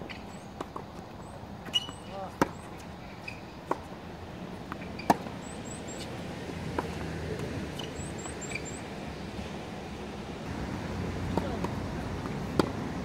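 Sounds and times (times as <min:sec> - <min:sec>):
tennis ball struck by racket: 0:11.3 - 0:12.8.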